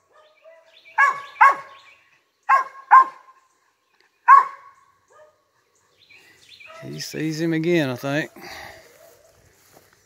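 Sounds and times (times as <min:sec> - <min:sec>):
dog barking: 0:00.0 - 0:01.8, 0:02.5 - 0:03.3, 0:04.3 - 0:05.5.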